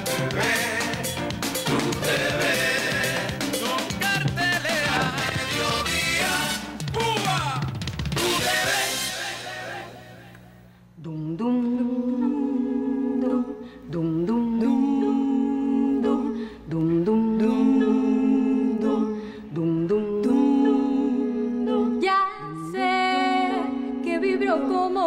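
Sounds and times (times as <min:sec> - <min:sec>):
female vocal harmony singing: 0:11.0 - 0:25.0.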